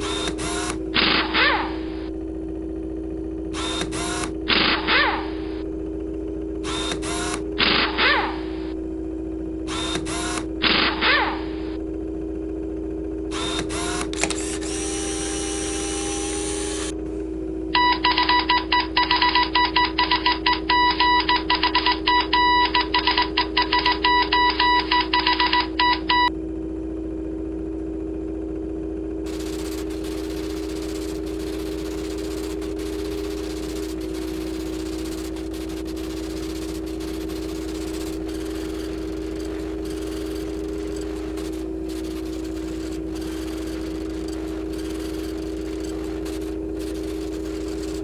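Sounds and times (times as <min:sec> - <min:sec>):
stuttering electronic data beeps: 0:17.8 - 0:26.3, 0:29.3 - 0:48.0
low electronic drone: 0:29.2 - 0:48.0.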